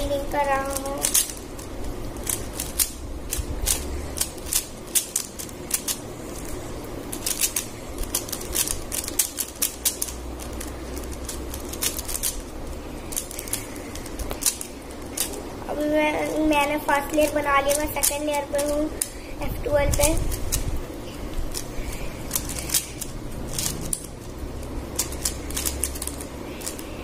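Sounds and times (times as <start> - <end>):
puzzle cube layers clicking: 0.0 - 15.4, 21.4 - 27.0.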